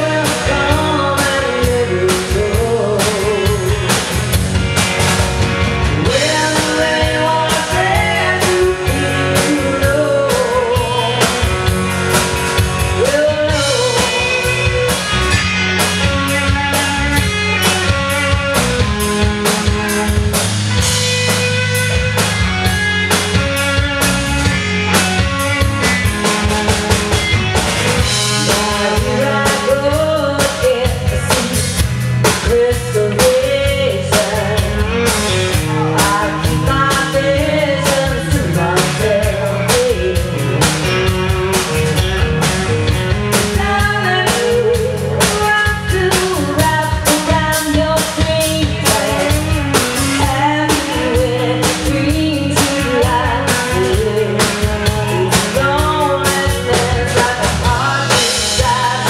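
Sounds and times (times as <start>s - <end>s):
woman singing: 0.0s - 4.0s, 6.0s - 11.8s, 12.9s - 15.0s, 28.3s - 41.0s, 43.4s - 59.0s
bass guitar: 0.0s - 59.0s
drum kit: 0.0s - 59.0s
electric guitars: 0.0s - 59.0s.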